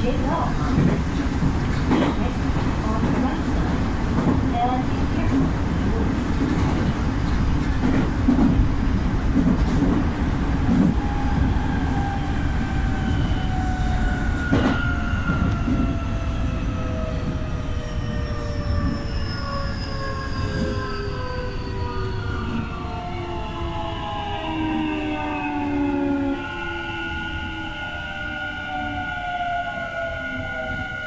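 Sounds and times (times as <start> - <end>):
wheels rumbling on rail: 0.0 - 23.1.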